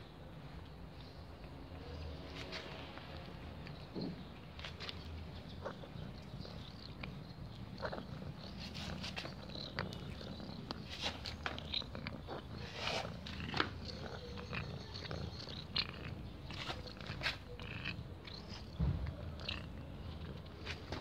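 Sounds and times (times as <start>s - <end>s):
cat purring: 4.6s - 21.0s
cat mouth smacking while eating: 5.6s - 19.7s.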